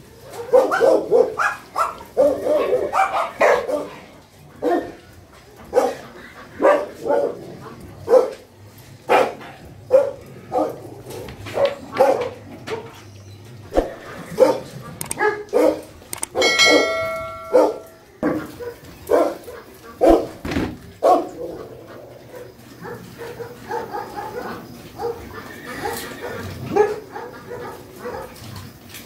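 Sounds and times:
dogs barking: 0.1 - 13.1, 13.7 - 28.9
bell-like chime: 16.4 - 17.7.

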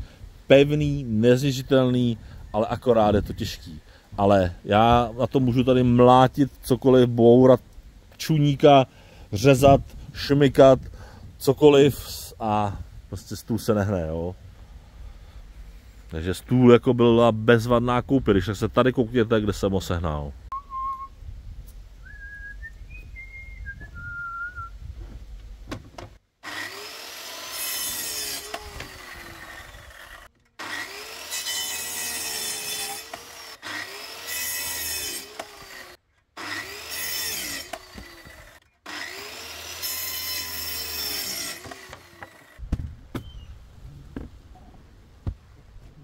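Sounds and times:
person whistling: 20.5 - 21.2, 22.0 - 24.8
hand saw cutting wood: 26.4 - 42.6.

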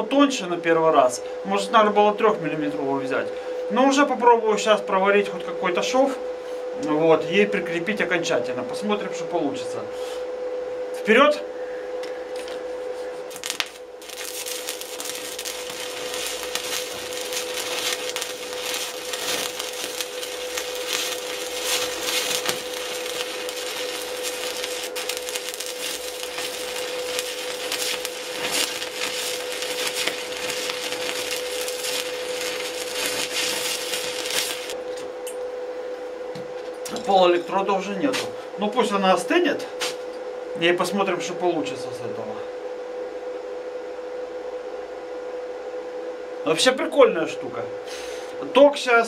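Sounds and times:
steady whine: 0.0 - 49.0
welding arc crackling: 13.3 - 35.4.

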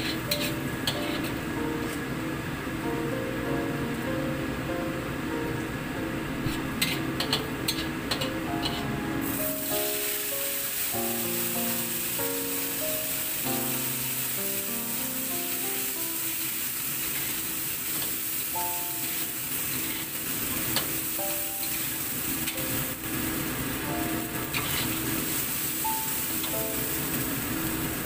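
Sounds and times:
spatula stirring in a wok: 0.0 - 1.3, 19.6 - 20.2
background music with simple melody: 0.3 - 16.3, 18.5 - 19.4, 21.2 - 21.9, 23.8 - 24.8, 25.8 - 27.2
vegetables sizzling in hot oil: 8.7 - 28.0.

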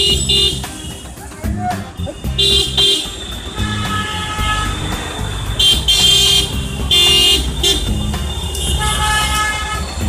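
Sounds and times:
street traffic rumbling: 0.0 - 10.0
shrill car horn toots: 2.0 - 4.8, 5.6 - 9.9.

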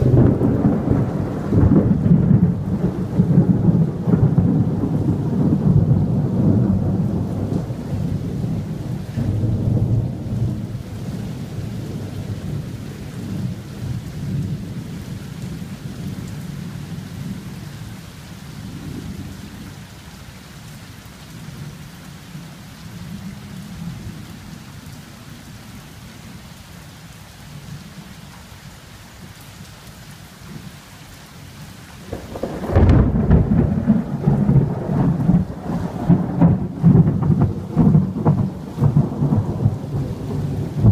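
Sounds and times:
loud thunderclap: 0.0 - 14.6, 32.1 - 40.9
thunder rumbling: 0.0 - 17.6, 32.0 - 40.9
steady rain: 0.0 - 40.9.

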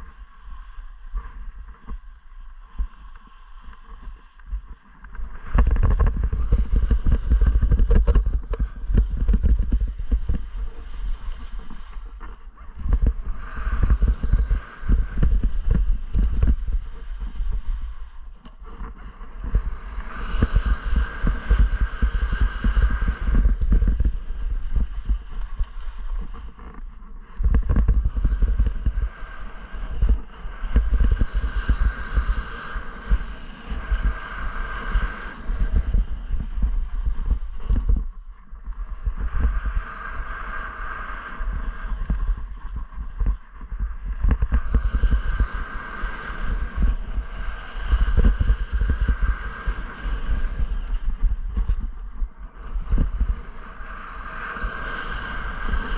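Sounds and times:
skis scraping over snow: 0.0 - 47.0
wind buffeting microphone: 0.0 - 55.9.

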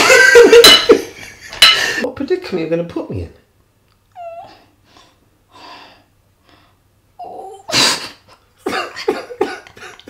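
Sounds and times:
woman laughing: 0.0 - 1.7, 8.1 - 10.0
woman sobbing: 7.2 - 10.0.

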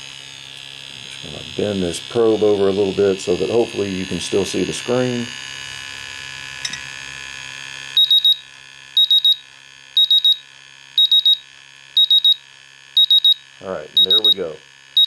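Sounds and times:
steady hum: 0.0 - 15.0
gas detector alarm beeps: 7.9 - 15.0.

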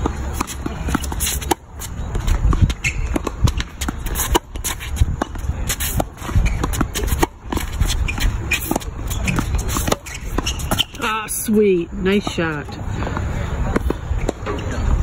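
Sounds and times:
tennis racket hitting ball: 0.0 - 11.2.

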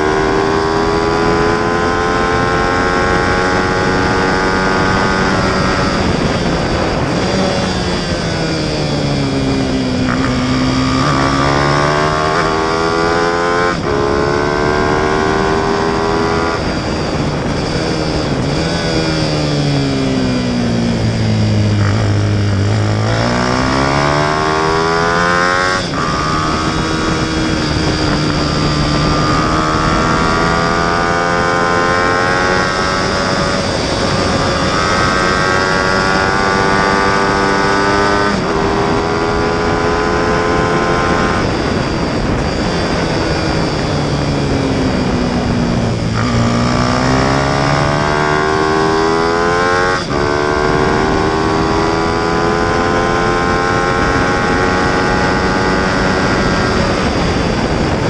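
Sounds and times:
racing motorcycle engine revving: 0.0 - 58.0.

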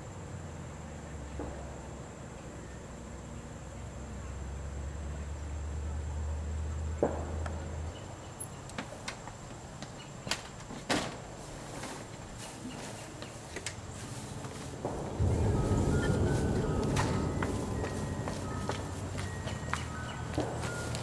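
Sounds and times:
low steady hum: 12.1 - 21.0.

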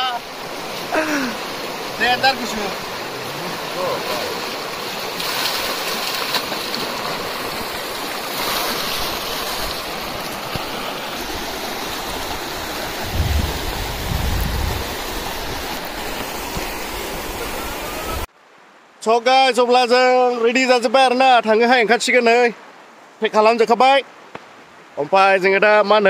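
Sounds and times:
river rushing over rocks: 0.0 - 18.3
bucket splashing through water: 0.6 - 10.8
wind buffeting microphone: 12.9 - 15.9.

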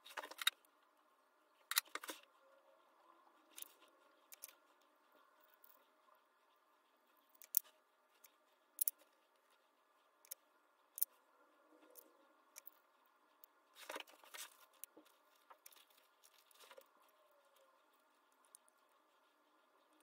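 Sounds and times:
small clicks and taps of pen parts: 3.5 - 4.6, 7.4 - 9.1.

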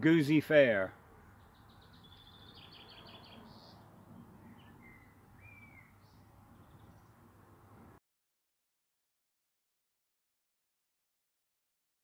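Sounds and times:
songbird chirping: 0.1 - 7.4.

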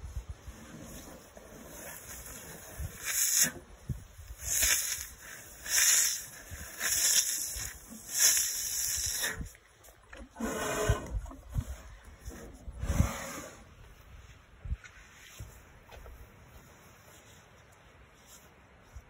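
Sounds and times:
elephant trunk sucking: 0.4 - 13.8.

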